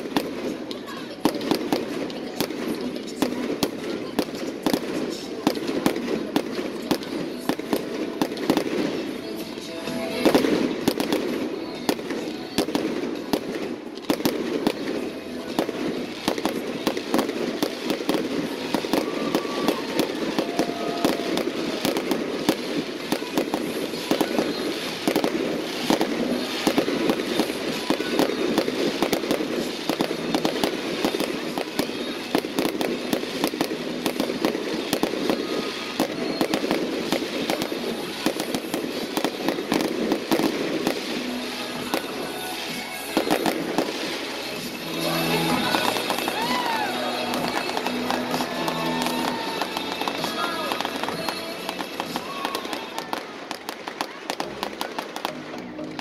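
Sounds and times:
fireworks crackling and popping: 0:00.0 - 0:56.0.

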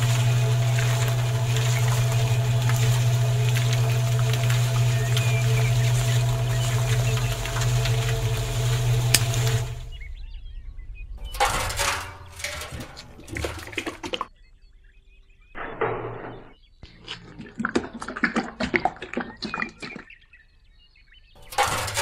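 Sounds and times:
cement pouring into tin bucket: 0:00.0 - 0:09.9, 0:11.2 - 0:14.3, 0:21.4 - 0:22.0.

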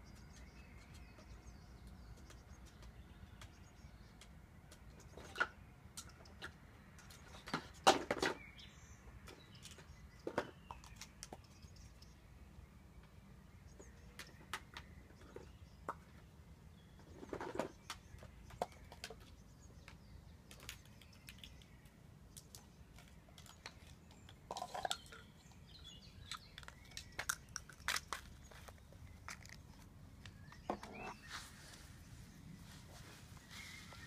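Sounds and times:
plastic cups clicking and knocking: 0:22.4 - 0:25.7, 0:26.3 - 0:31.0
plastic cups clattering: 0:22.9 - 0:25.6.

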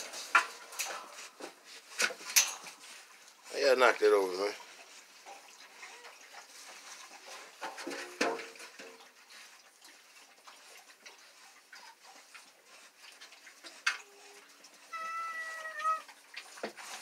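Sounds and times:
puppies rustling in straw: 0:00.0 - 0:07.6
puppy whining: 0:14.0 - 0:16.2.

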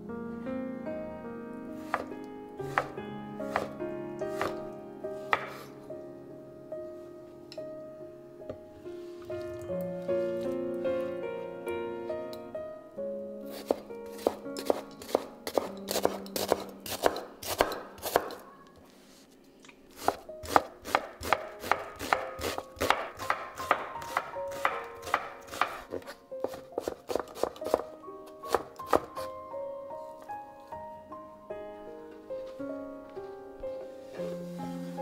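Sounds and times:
knife chopping on wooden board: 0:01.9 - 0:02.1, 0:02.7 - 0:03.7, 0:04.3 - 0:04.6, 0:05.3 - 0:05.7, 0:13.6 - 0:18.4, 0:20.0 - 0:27.9, 0:28.5 - 0:29.1.

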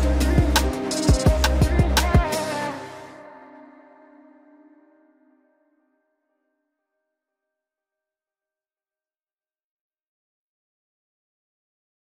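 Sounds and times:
electronic music: 0:00.0 - 0:05.1.

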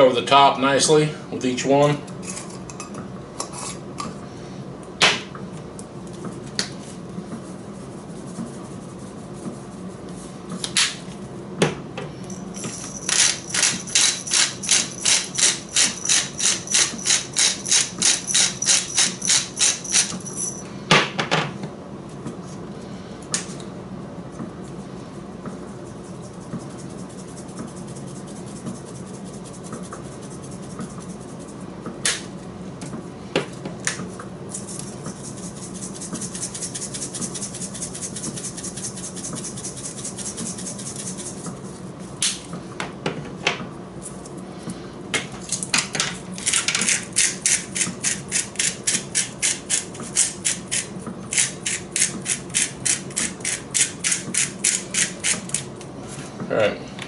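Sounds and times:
spice grinder grinding: 0:12.3 - 0:20.6
seasoning shaken into glass bowl: 0:34.6 - 0:41.4.

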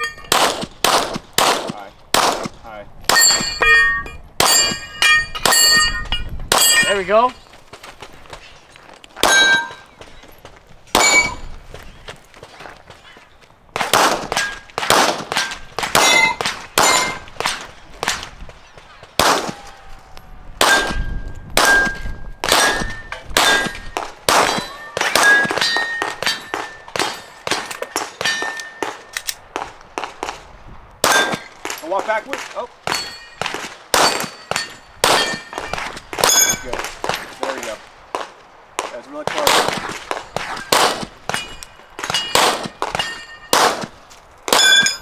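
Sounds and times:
steel plate targets ringing: 0:00.0 - 0:00.4, 0:03.1 - 0:07.4, 0:09.2 - 0:09.9, 0:11.0 - 0:11.5, 0:15.4 - 0:17.3, 0:20.6 - 0:29.1, 0:31.0 - 0:32.0, 0:32.9 - 0:36.8, 0:40.5 - 0:43.7, 0:44.5 - 0:45.0
gunshots: 0:00.3 - 0:03.6, 0:13.8 - 0:18.3, 0:19.2 - 0:19.7, 0:20.6 - 0:21.0, 0:21.6 - 0:30.4, 0:31.0 - 0:41.4, 0:42.0 - 0:43.9.

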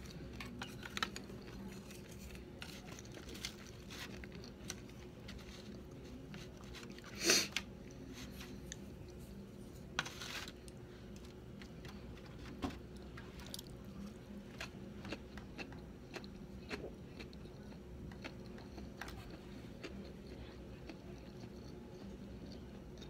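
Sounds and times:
faint steady hum: 0:00.0 - 0:23.0
chewing with mouth clicks: 0:13.1 - 0:23.0.

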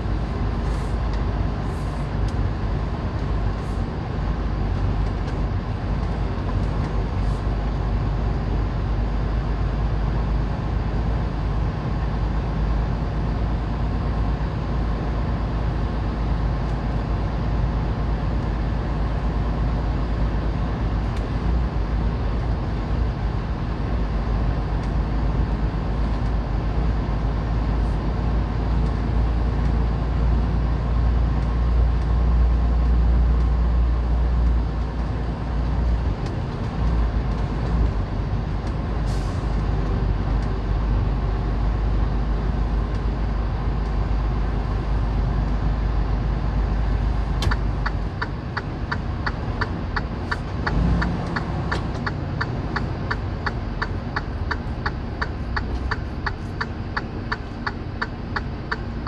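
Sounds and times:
diesel truck engine rumble: 0:00.0 - 0:59.0.

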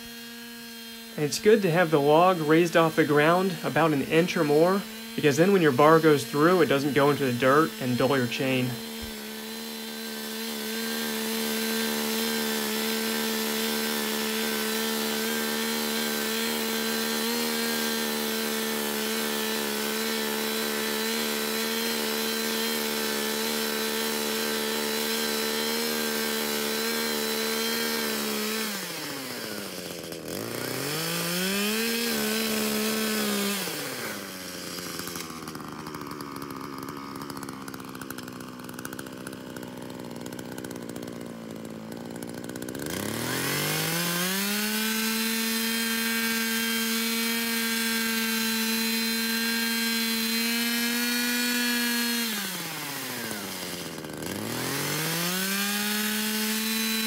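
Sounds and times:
chainsaw cutting through log: 0:00.0 - 0:57.0.

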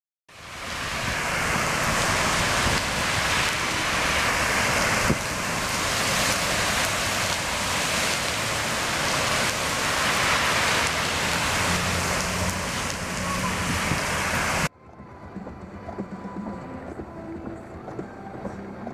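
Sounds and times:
tyres splashing through water: 0:00.3 - 0:14.7.

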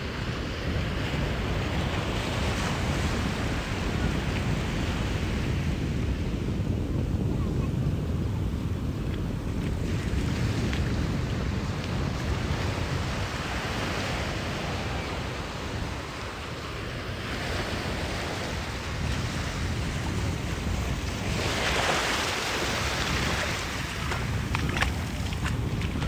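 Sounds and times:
wind buffeting microphone: 0:00.0 - 0:26.0
ocean surf breaking: 0:08.6 - 0:26.0.

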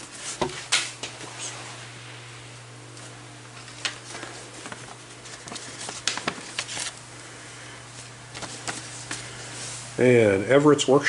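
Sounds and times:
steady low hum: 0:00.0 - 0:11.0
paper and card rustling: 0:03.6 - 0:07.0, 0:08.0 - 0:09.8.

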